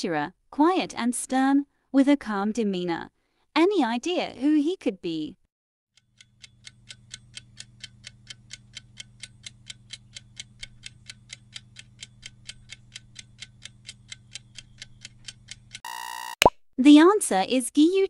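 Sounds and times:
clock ticking: 6.0s - 15.8s.

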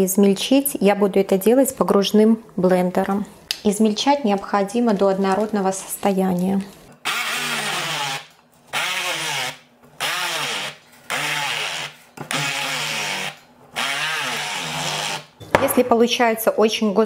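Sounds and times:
immersion blender motor: 7.0s - 15.3s.

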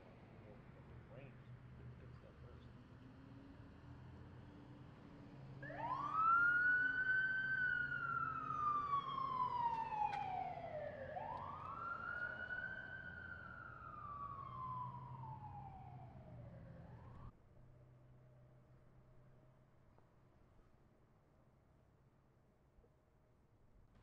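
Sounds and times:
siren wailing: 5.6s - 17.3s.

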